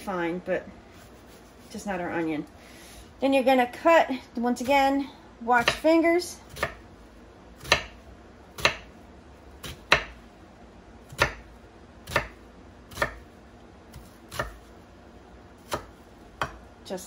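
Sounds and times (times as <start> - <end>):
knife chopping on wooden board: 5.6 - 5.8, 6.5 - 6.8, 7.6 - 8.0, 8.6 - 8.9, 9.6 - 10.2, 11.1 - 13.3, 13.9 - 14.7, 15.6 - 16.6.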